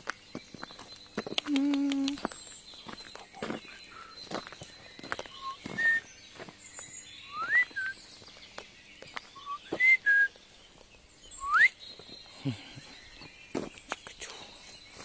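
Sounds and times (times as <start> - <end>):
faint bird chirps: 0.0 - 15.0
person whistling: 5.4 - 6.0, 7.3 - 7.9, 9.5 - 10.3, 11.4 - 11.7.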